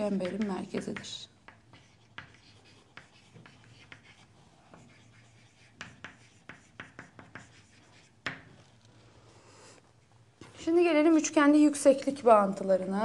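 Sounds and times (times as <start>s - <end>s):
chalk writing on chalkboard: 0.0s - 8.8s.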